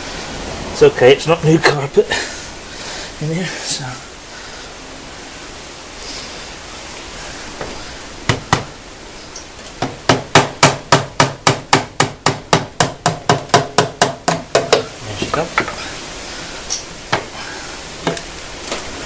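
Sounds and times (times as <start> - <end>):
hammer tapping on engine: 9.8 - 14.9.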